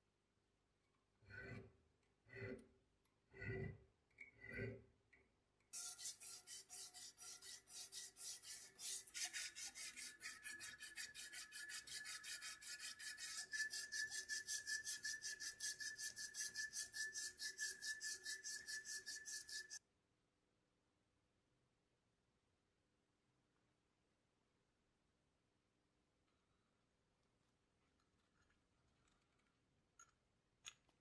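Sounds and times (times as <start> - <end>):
file scraping brass threads: 1.2 - 5.0, 5.8 - 19.8.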